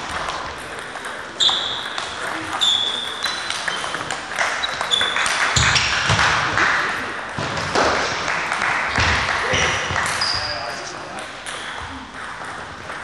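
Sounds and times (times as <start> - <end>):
shoe squeaks on floor: 1.4 - 1.9, 2.5 - 5.9, 9.5 - 10.8.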